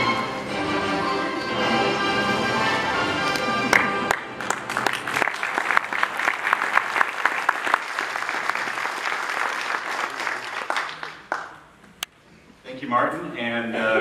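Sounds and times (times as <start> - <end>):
audience applauding: 3.3 - 11.7.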